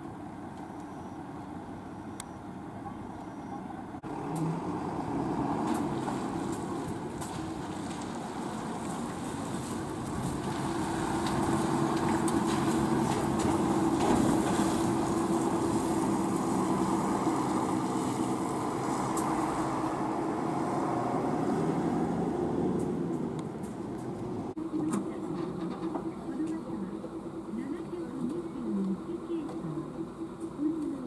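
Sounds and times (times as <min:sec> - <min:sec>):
bus engine driving past: 0:00.0 - 0:31.0.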